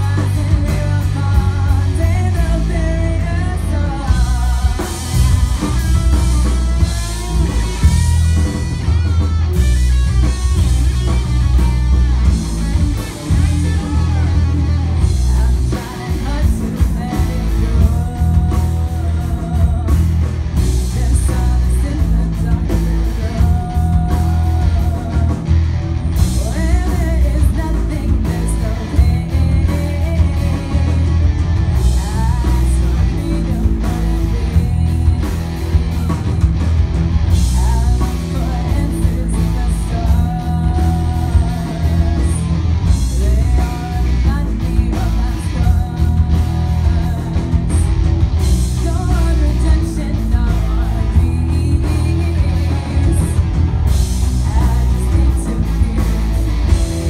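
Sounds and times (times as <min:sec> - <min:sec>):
bass guitar: 0:00.0 - 0:57.0
distorted electric guitars: 0:00.0 - 0:57.0
drum kit: 0:00.0 - 0:57.0
lead singer singing: 0:00.0 - 0:57.0.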